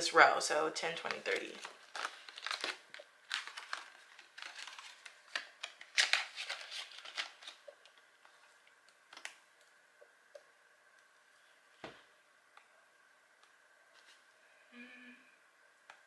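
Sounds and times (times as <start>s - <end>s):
plastic and paper rustling: 0.9s - 9.4s.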